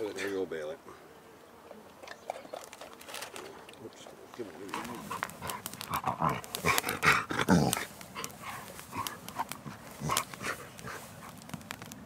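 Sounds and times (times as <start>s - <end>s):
dog chewing clicks: 4.7s - 11.4s.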